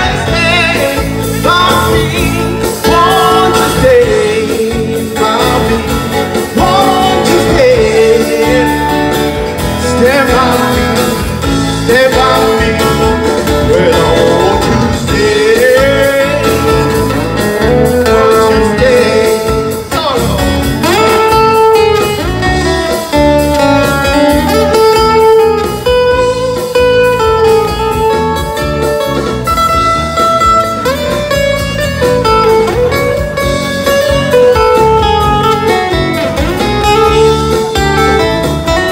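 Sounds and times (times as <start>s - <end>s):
man singing into microphone: 0.0s - 17.1s, 17.7s - 21.6s
acoustic guitar: 0.0s - 38.9s.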